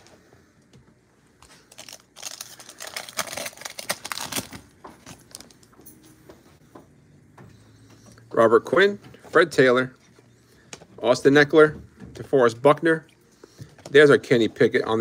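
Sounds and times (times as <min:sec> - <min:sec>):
foil wrapper tearing and crinkling: 0:01.6 - 0:05.6.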